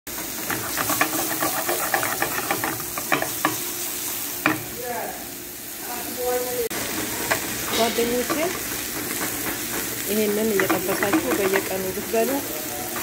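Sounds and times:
vegetables sizzling in a frying pan: 0.1s - 13.0s
wooden spatula clicking and scraping: 0.3s - 3.6s, 7.0s - 12.0s.

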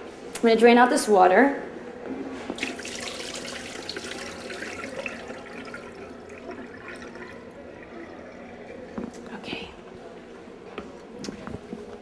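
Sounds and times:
water pouring and splashing: 2.6s - 9.4s
water dripping: 2.6s - 9.5s.

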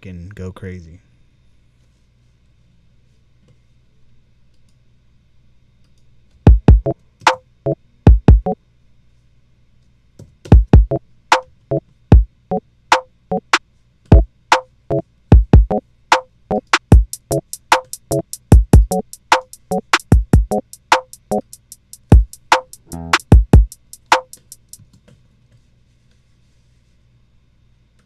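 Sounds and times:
deep kick drum hits: 6.5s - 6.9s, 8.1s - 8.5s, 10.5s - 11.0s, 15.3s - 15.7s, 18.6s - 18.9s, 20.1s - 20.6s, 23.0s - 23.7s
sharp high drum machine hits: 16.8s - 24.7s.

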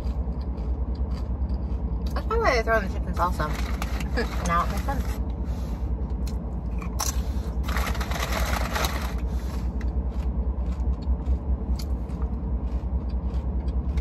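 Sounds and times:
crunching chips: 0.0s - 2.2s, 6.3s - 14.0s
low car cabin rumble: 0.0s - 14.0s.

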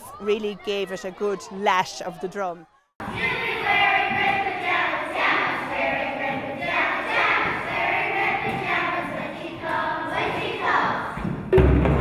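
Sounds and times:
children chanting in unison: 0.0s - 11.2s.

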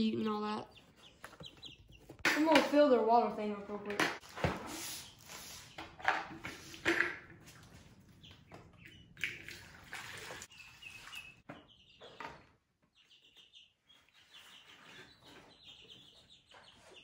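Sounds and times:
chicks peeping: 0.1s - 2.2s, 7.4s - 9.4s, 10.5s - 17.0s
water pouring: 9.2s - 10.5s.

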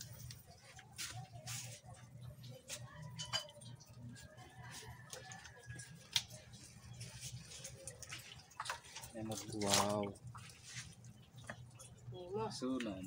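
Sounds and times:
wet squelches and splashes: 3.6s - 12.9s.

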